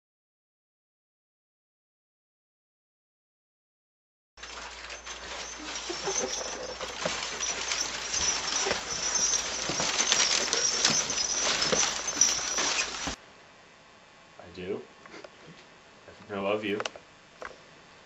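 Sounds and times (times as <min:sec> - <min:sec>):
footsteps: 0:04.4 - 0:13.2
rustling close to microphone: 0:04.4 - 0:13.2.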